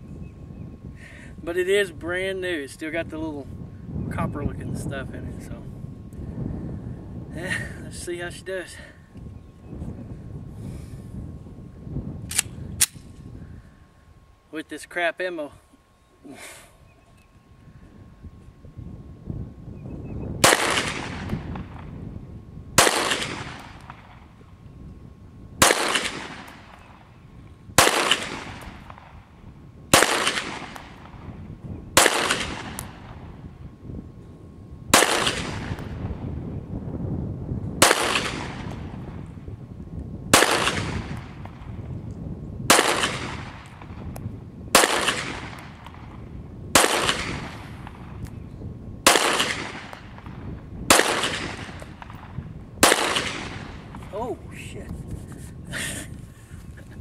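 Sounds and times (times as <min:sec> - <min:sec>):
pistol shots with echo: 0:20.4 - 0:21.9, 0:22.8 - 0:24.2, 0:25.6 - 0:27.0, 0:27.8 - 0:29.2, 0:29.9 - 0:31.2, 0:32.0 - 0:33.2, 0:34.9 - 0:36.2, 0:37.8 - 0:39.0, 0:40.3 - 0:41.7, 0:42.7 - 0:44.0, 0:44.7 - 0:46.1, 0:46.8 - 0:48.1, 0:49.0 - 0:54.1.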